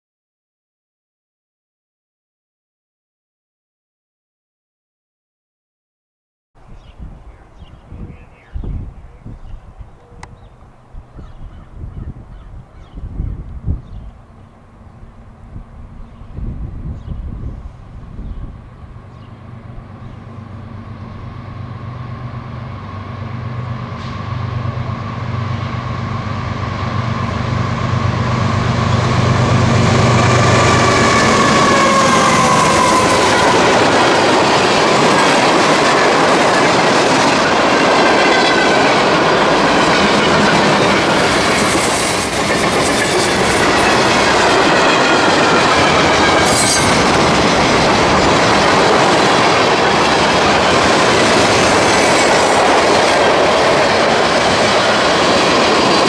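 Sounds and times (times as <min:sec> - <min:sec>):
diesel locomotive engine drone: 0:07.0 - 0:56.0
train wheels clacking on rails: 0:23.8 - 0:56.0.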